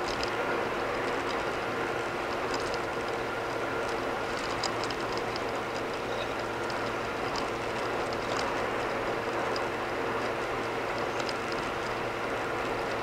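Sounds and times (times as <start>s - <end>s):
car tyre and road noise: 0.0s - 13.0s
light ticks: 2.3s - 12.0s.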